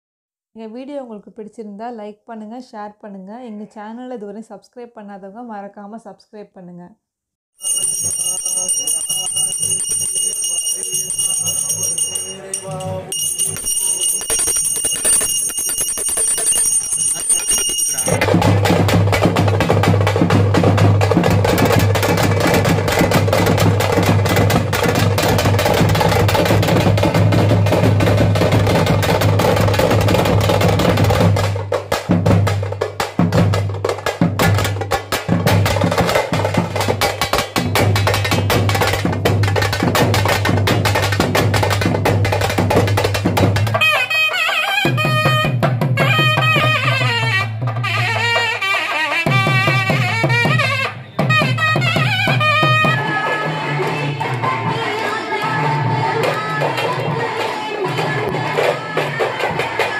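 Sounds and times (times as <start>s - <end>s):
hand bell ringing: 7.6s - 18.2s
frame drums struck with sticks: 18.1s - 43.8s.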